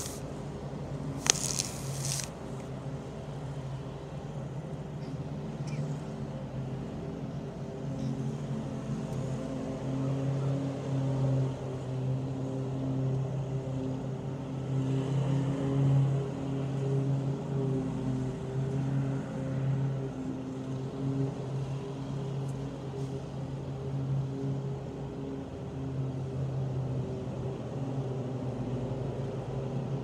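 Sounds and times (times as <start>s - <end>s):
brief hiss: 0.0s - 0.2s, 1.2s - 2.3s
lawnmower engine running: 0.0s - 0.2s, 1.1s - 2.6s.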